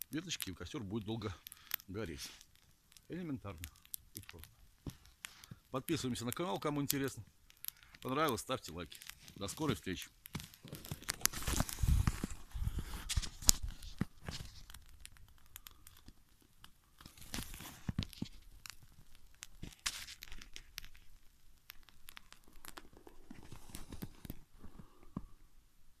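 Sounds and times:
twig fire crackling and popping: 0.0 - 26.0.

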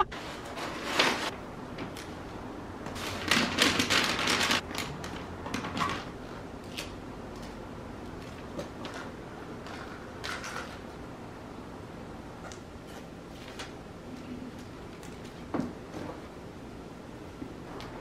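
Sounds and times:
wrapping paper rustling and crinkling: 0.1 - 1.3, 3.0 - 6.0.

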